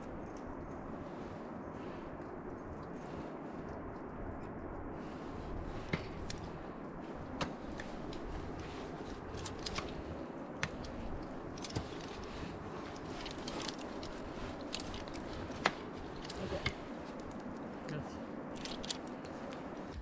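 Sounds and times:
low background rush: 0:00.0 - 0:20.0
climbing gear clicking and clinking: 0:05.9 - 0:20.0.

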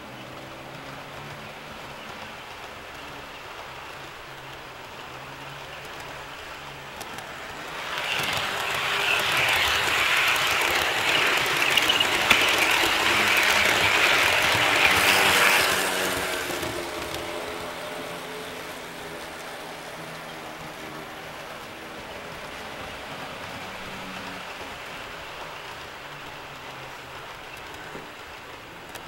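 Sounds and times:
model train wheels rattling on track: 0:00.1 - 0:29.0
track clicks: 0:05.5 - 0:17.7.

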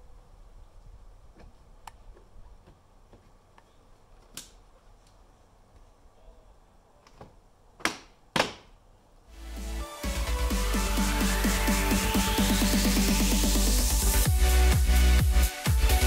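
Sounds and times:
electronic music with rising sweep: 0:09.3 - 0:16.0.

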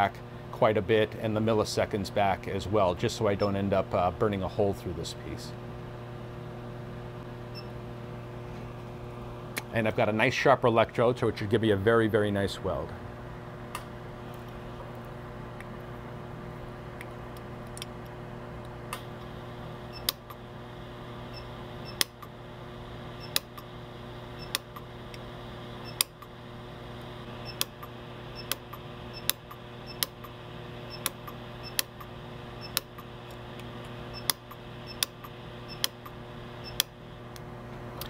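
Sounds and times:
dust collector humming: 0:18.3 - 0:38.0
welder pulse clicks: 0:19.9 - 0:20.4, 0:21.4 - 0:22.4, 0:23.2 - 0:23.7, 0:24.4 - 0:25.2, 0:25.9 - 0:26.3, 0:27.4 - 0:38.0.

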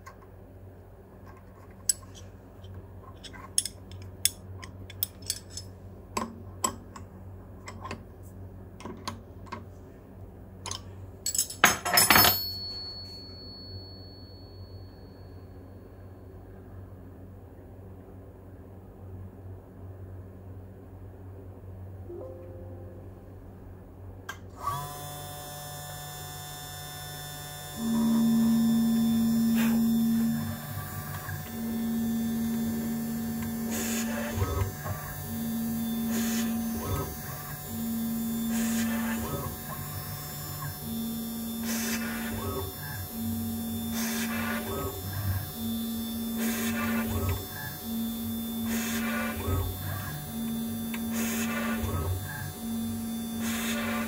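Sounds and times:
loud low motor hum: 0:18.8 - 0:54.0
cnc spindle whine: 0:24.7 - 0:54.0.

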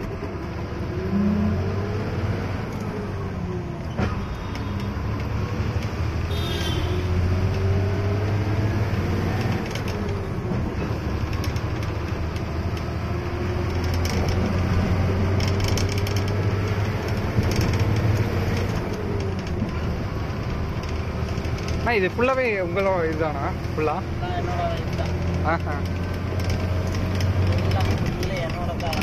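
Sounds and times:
truck diesel engine drone: 0:00.0 - 0:29.0
cab rattling clicks: 0:09.2 - 0:29.0.

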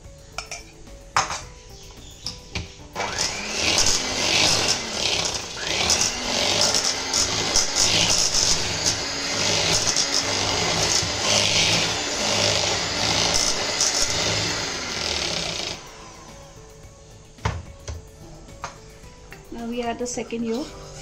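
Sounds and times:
electric hand mixer whisking: 0:03.0 - 0:16.7.

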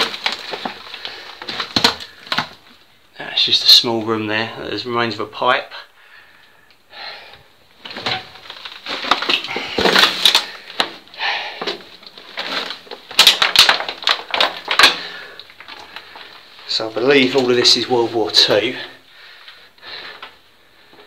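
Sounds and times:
footsteps crunching over debris: 0:00.0 - 0:02.8, 0:07.8 - 0:19.0
sharp clicks and crackles: 0:12.0 - 0:16.5.

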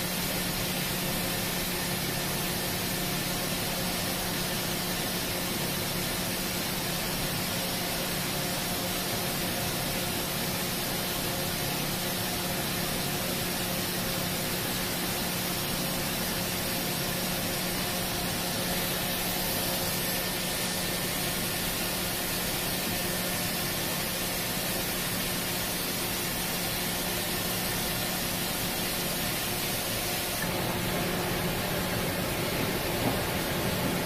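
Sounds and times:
machine hiss: 0:00.0 - 0:34.0
machine hum: 0:14.2 - 0:34.0.

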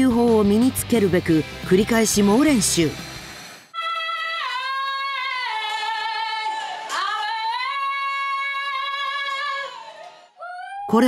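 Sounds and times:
girl singing long vowel tones: 0:03.8 - 0:11.0.

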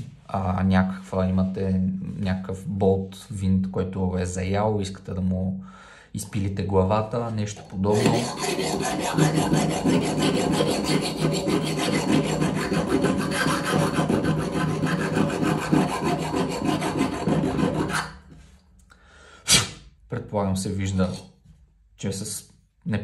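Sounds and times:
file rasping on metal: 0:07.9 - 0:18.2.

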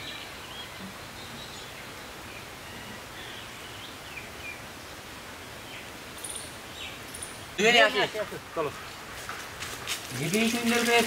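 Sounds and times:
steady background hiss: 0:00.0 - 0:11.0
faint bird chirps: 0:05.5 - 0:07.6.

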